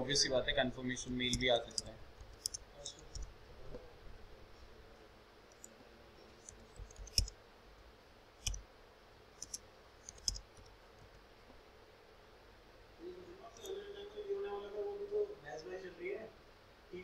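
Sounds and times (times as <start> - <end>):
faint room noise: 0.0 - 17.0
keyboard and mouse clicks: 1.1 - 3.3, 5.5 - 5.8, 6.4 - 7.4, 8.4 - 8.6, 9.4 - 11.2.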